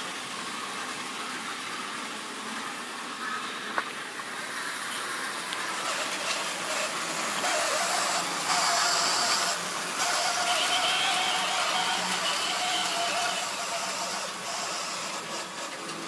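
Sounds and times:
wheels rattling on rail: 0.0 - 16.0
model train motor whining: 4.2 - 16.0.

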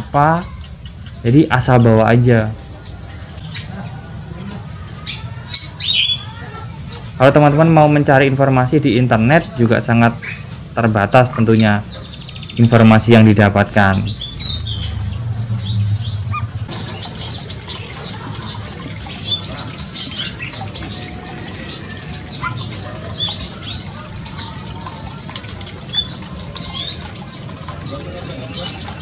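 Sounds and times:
small birds chirping: 0.0 - 29.0
water trickling over stone: 16.7 - 29.0.

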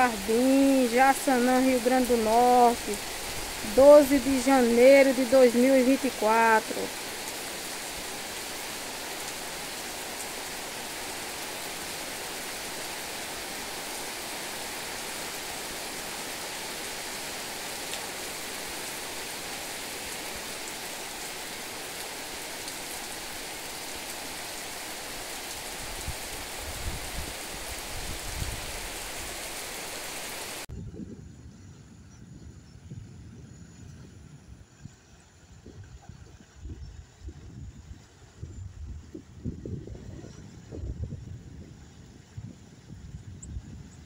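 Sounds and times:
heavy rain falling: 0.0 - 30.7.

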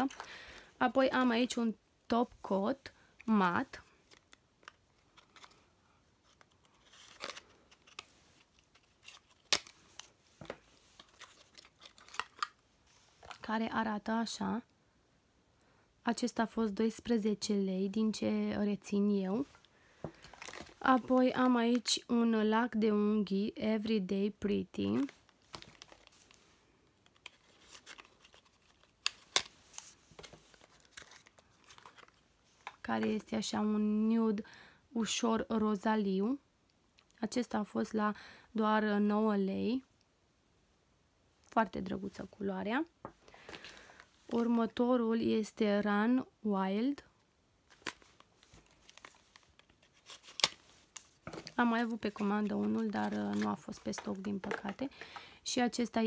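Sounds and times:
cardboard rustling: 47.7 - 55.2.

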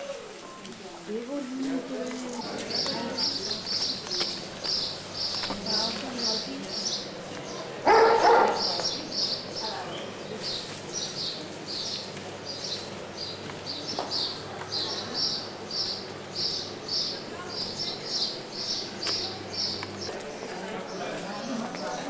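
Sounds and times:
small birds chirping: 1.8 - 22.0
dog barking: 7.8 - 8.8.

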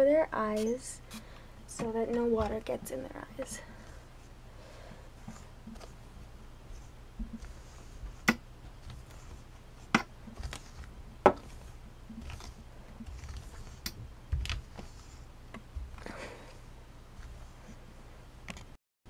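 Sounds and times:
wire brush scratching through wig hair: 6.7 - 15.3.

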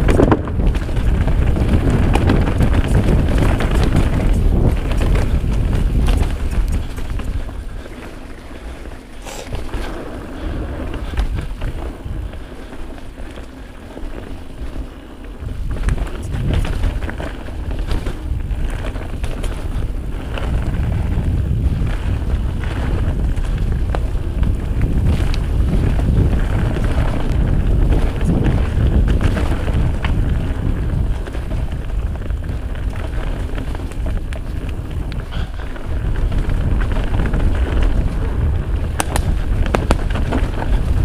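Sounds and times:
knobby tyres rumbling: 0.0 - 41.0
wind rushing over microphone: 0.0 - 41.0
bike clattering over rocks: 33.0 - 41.0.

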